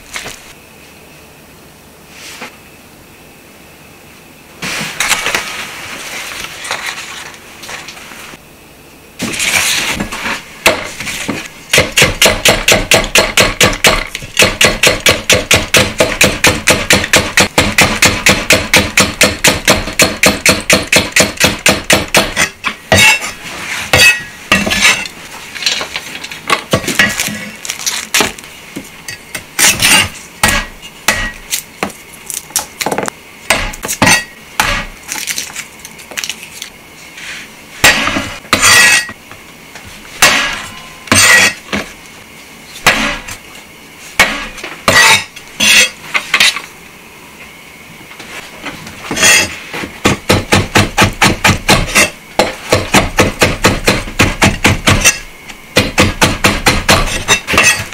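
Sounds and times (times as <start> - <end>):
knife chopping on wooden board: 29.6 - 31.4, 32.9 - 34.9, 50.0 - 55.2, 55.8 - 57.9.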